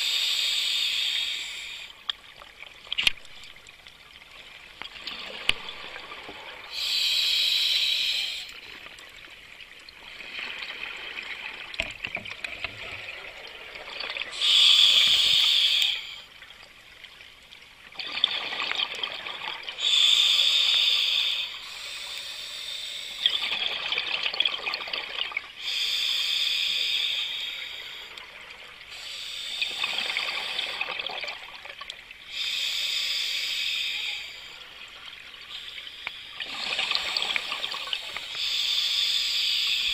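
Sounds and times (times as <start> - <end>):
regulator hiss: 0.0 - 2.0, 6.7 - 8.8, 14.4 - 16.3, 19.8 - 23.5, 25.6 - 28.2, 28.9 - 30.9, 32.3 - 34.7, 35.5 - 39.9.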